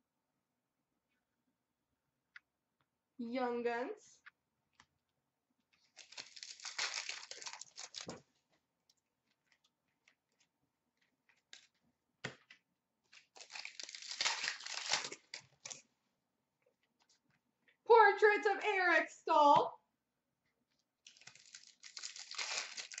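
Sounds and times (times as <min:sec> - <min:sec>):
card pack wrappers tearing: 0:05.9 - 0:08.2, 0:13.2 - 0:15.8, 0:21.1 - 0:23.0.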